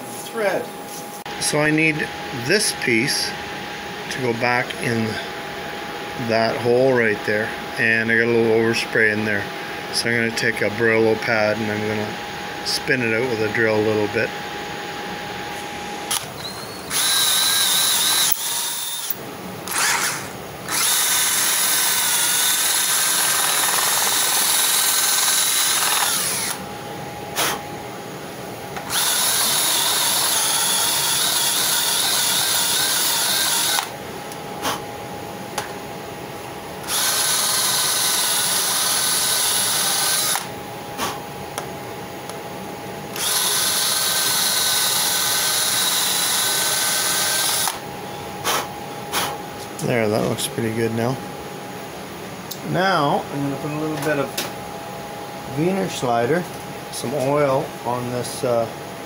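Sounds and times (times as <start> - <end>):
electric drill whining: 16.1 - 26.6, 28.8 - 34.0, 36.8 - 40.5, 43.1 - 47.8.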